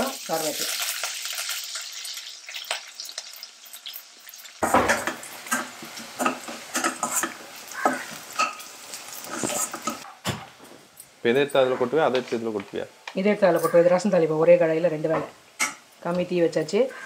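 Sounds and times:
food sizzling in hot oil: 0.0s - 10.1s
metal spatula scraping a pan: 4.6s - 10.0s.

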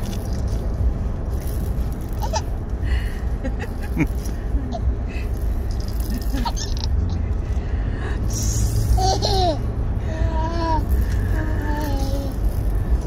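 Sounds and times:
low car rumble: 0.0s - 13.0s
baby laughing and babbling: 2.2s - 2.6s, 8.9s - 12.5s.

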